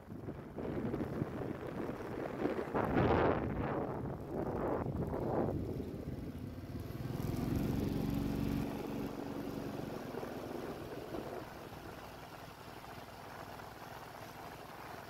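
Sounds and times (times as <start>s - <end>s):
vehicle engine humming: 4.1s - 15.0s.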